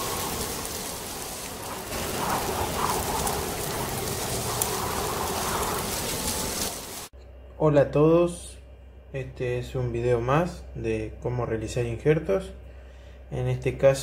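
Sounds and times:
steady rain-like hiss: 0.0s - 7.1s.

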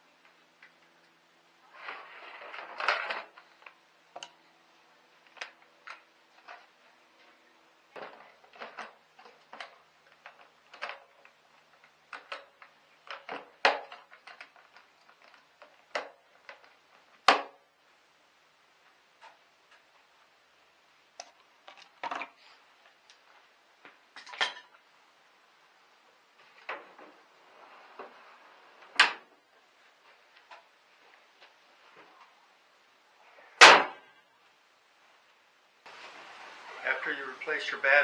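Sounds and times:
rustling clatter: 1.6s - 3.8s
plastic parts clicking and knocking: 7.9s - 17.6s, 21.2s - 22.4s.

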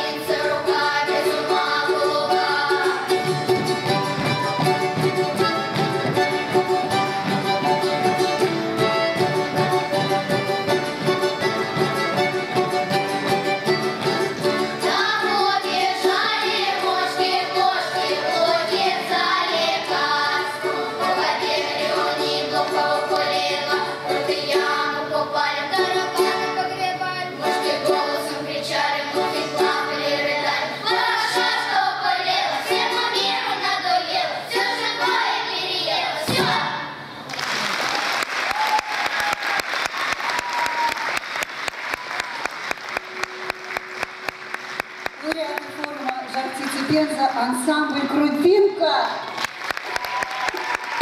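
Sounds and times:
accordion: 0.0s - 33.6s
string instrument: 0.0s - 37.1s, 40.1s - 51.0s
children's choir singing: 0.0s - 37.3s.

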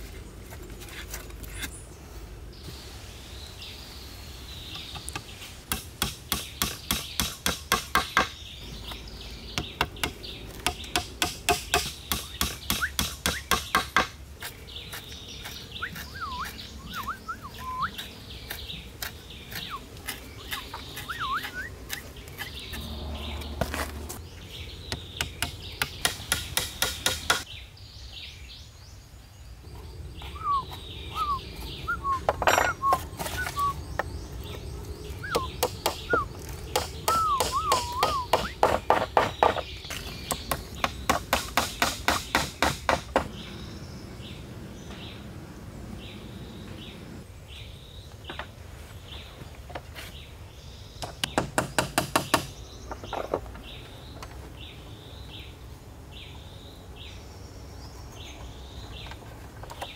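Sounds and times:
small birds chirping: 0.0s - 59.9s
hammer tapping on wood: 36.8s - 39.6s.

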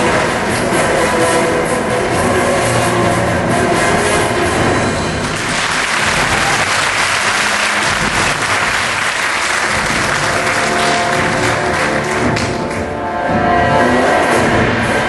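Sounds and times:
music: 0.0s - 15.0s
audience applauding: 5.0s - 13.0s.

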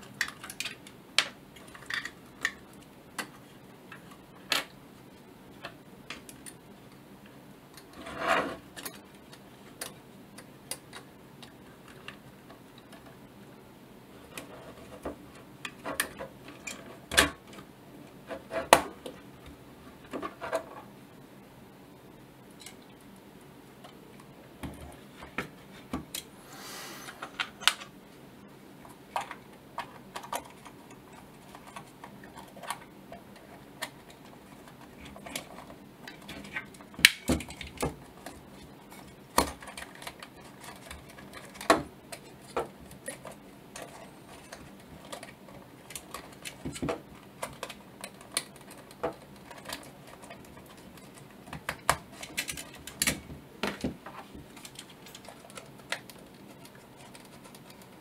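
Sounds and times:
brief rubbing: 26.4s - 27.5s.

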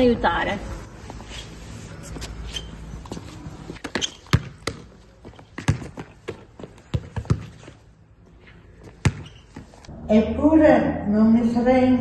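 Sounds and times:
ball thumping on concrete: 3.8s - 7.6s, 8.9s - 9.4s.

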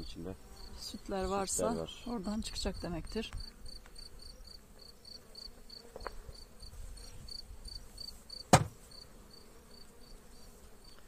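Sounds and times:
honeybees humming: 0.0s - 11.0s
sharp knock: 8.5s - 8.8s.

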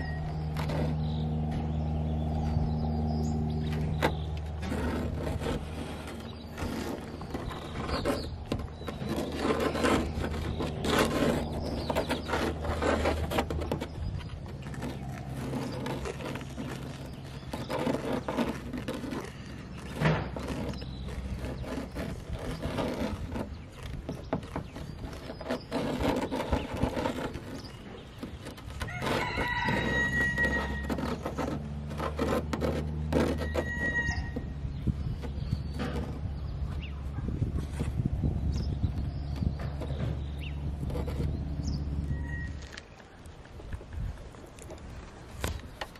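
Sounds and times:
plastic nozzle scraping debris: 0.0s - 45.9s
rooster crowing: 28.9s - 30.8s.

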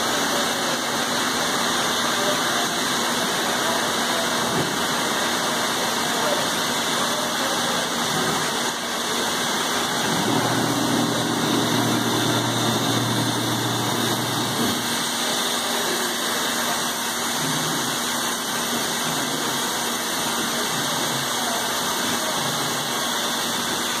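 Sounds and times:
cnc router spindle rushing: 1.0s - 24.0s
low motor hum: 9.9s - 14.9s.

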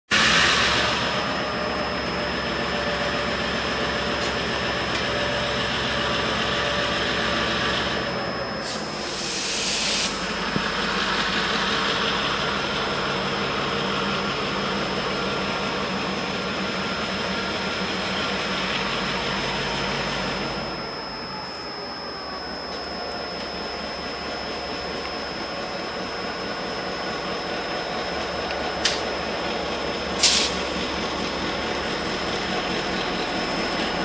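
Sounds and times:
locomotive engine running: 0.1s - 34.0s
short sharp hiss: 30.2s - 30.6s.

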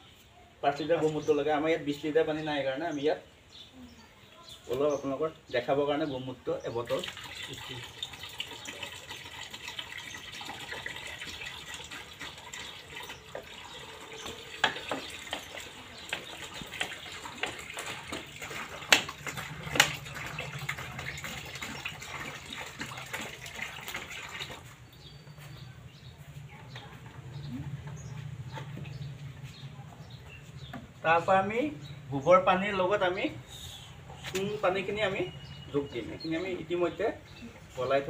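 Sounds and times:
liquid pouring into a basin: 6.8s - 24.8s.

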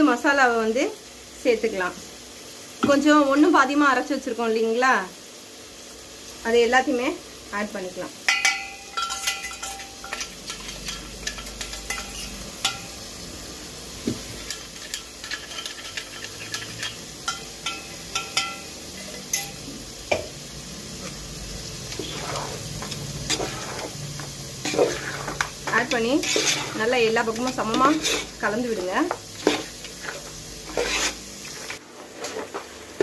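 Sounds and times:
faint food sizzling: 0.0s - 33.0s
spoon scraping metal jar: 9.0s - 12.8s, 21.9s - 24.0s, 24.6s - 28.4s, 29.4s - 31.2s
paste being stirred: 21.9s - 28.4s, 29.4s - 32.6s.

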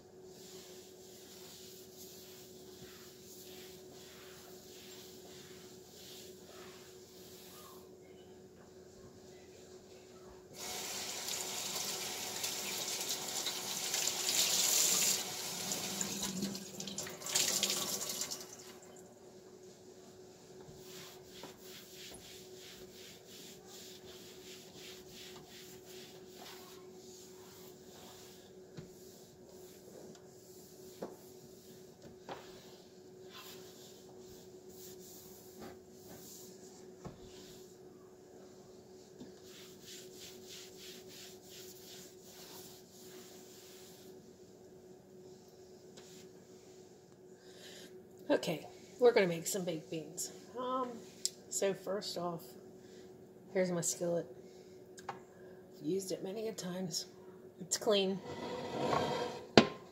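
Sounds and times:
cloth rubbing on stovetop: 0.1s - 8.0s, 19.3s - 47.1s, 57.8s - 59.9s
kitchen tap running water: 10.6s - 18.9s
faint steady hum: 11.2s - 59.9s.

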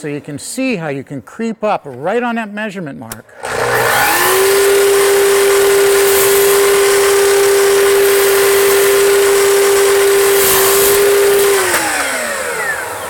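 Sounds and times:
saw blade cutting trim: 3.1s - 13.0s
miter saw motor whining: 3.4s - 13.0s.

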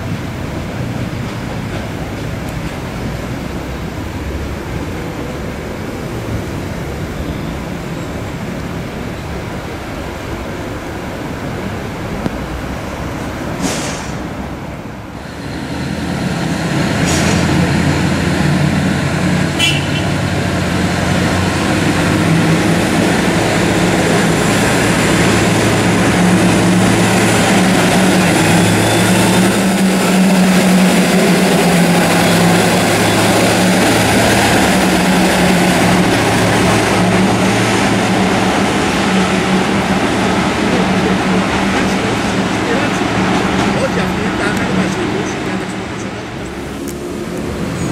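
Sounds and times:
rushing noise: 0.0s - 47.9s.

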